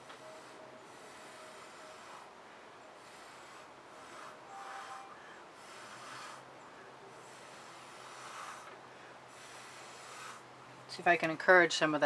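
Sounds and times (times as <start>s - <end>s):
breath blown through a straw: 3.0s - 6.5s.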